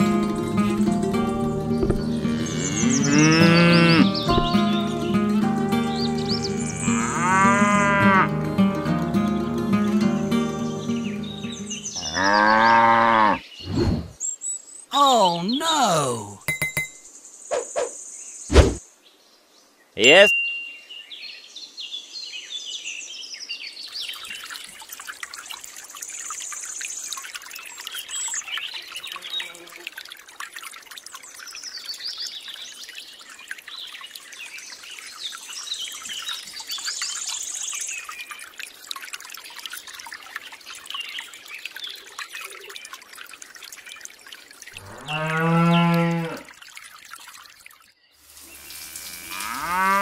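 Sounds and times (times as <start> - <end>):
water trickling into pond: 0.0 - 50.0
birds chirping and singing: 0.2 - 8.2, 10.2 - 14.4
cow mooing: 2.2 - 4.2, 6.9 - 8.3, 12.0 - 13.4, 44.8 - 46.4, 49.1 - 50.0.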